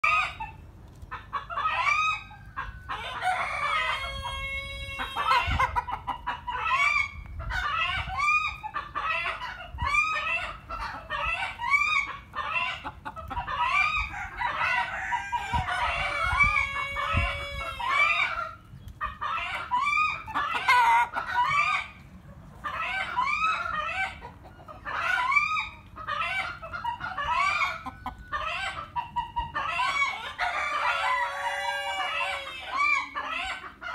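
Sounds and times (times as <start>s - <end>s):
chickens clucking and cackling: 0.0s - 33.9s
chicken long drawn-out call: 1.5s - 5.9s, 6.5s - 18.6s, 22.6s - 33.9s.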